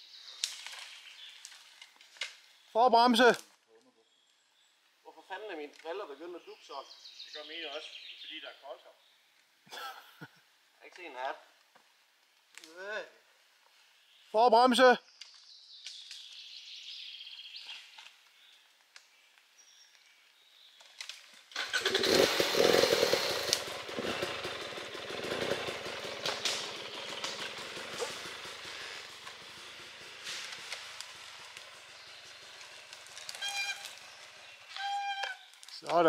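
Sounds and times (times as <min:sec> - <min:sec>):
dirt bike engine: 0:21.5 - 0:34.8.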